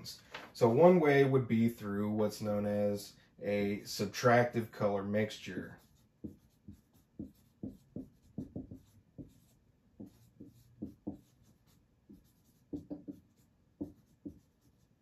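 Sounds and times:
pen strokes on a surface: 0:05.6 - 0:15.0.

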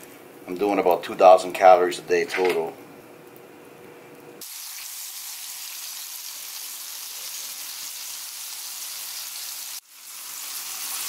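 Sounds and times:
fish sizzling in butter: 0:04.4 - 0:11.0.

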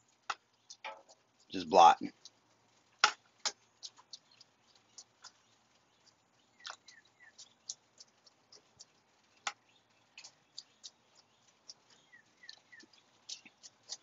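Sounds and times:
bird chirps: 0:00.4 - 0:02.4, 0:03.5 - 0:14.0
mop dabbing on steel grate: 0:03.0 - 0:14.0.

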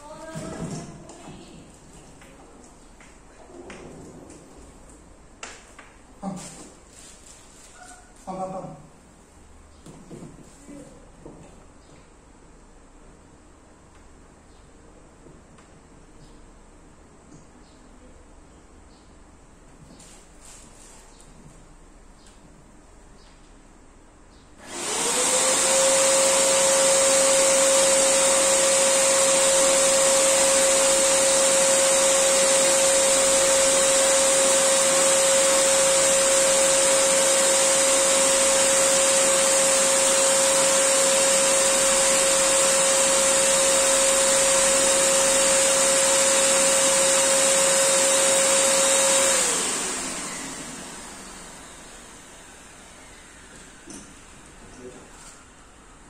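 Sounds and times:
electric air pump whining: 0:24.6 - 0:54.6.

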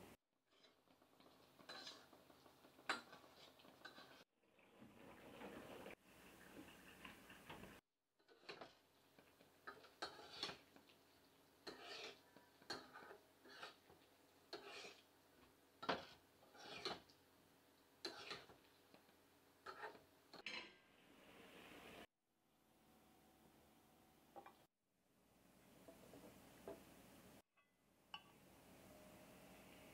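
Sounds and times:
chilies sizzling in hot pan: 0:00.0 - 0:04.3, 0:07.7 - 0:22.1
metal spatula scraping a pan: 0:00.5 - 0:04.3, 0:05.0 - 0:17.2, 0:18.0 - 0:22.1.

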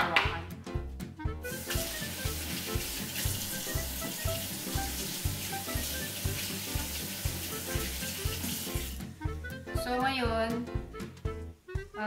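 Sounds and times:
background music with steady beat: 0:00.0 - 0:12.0
tap running into sink: 0:01.5 - 0:09.0.

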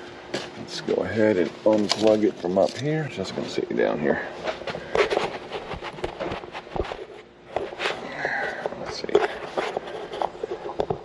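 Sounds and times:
footsteps: 0:04.4 - 0:11.0.

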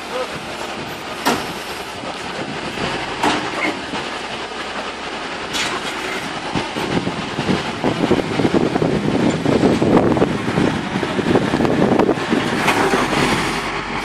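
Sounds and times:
crane running: 0:00.0 - 0:14.0.

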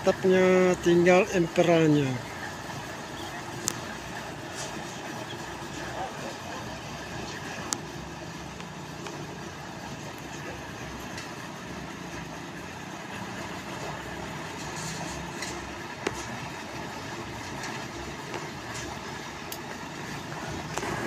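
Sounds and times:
engine running: 0:00.0 - 0:21.0.

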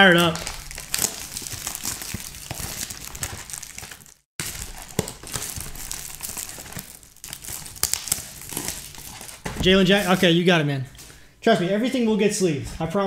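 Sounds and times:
plastic shrink-wrap crinkling: 0:00.0 - 0:10.4.

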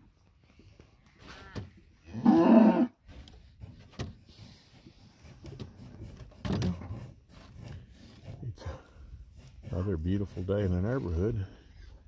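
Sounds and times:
cow mooing: 0:01.5 - 0:02.9.

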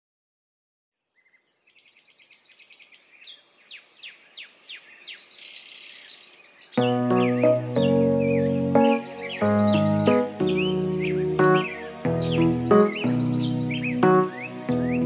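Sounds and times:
songbird chirping: 0:01.0 - 0:15.0
music with held notes: 0:06.8 - 0:15.0.

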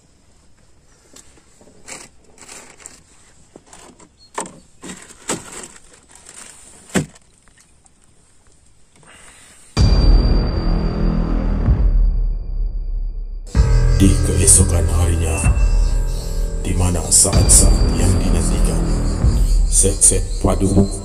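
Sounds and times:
heavy thump: 0:09.8 - 0:20.5.

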